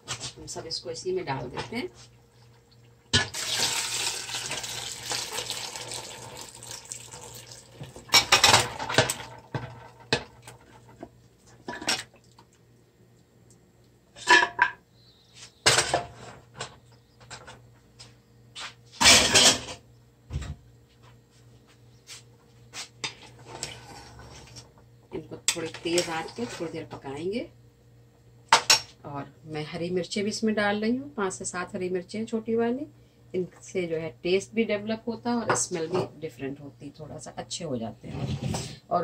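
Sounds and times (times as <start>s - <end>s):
liquid pouring into metal pot: 3.2s - 9.4s.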